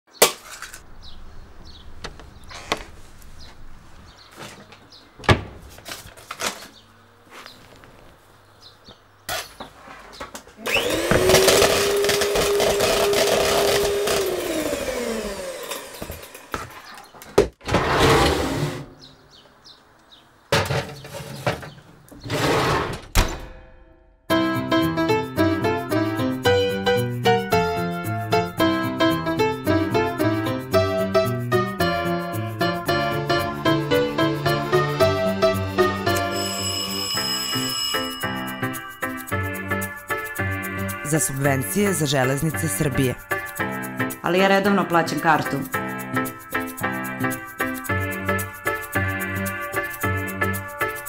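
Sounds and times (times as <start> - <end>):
electric hand mixer whirring: 10.6 - 16.6
light piano music: 24.3 - 51.0.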